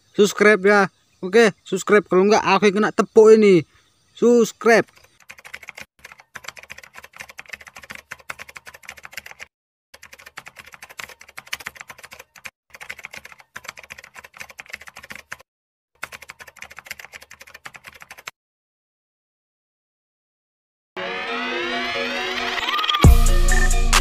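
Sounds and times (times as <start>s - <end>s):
rapid keyboard key clicks: 4.9s - 15.4s, 16.0s - 18.3s.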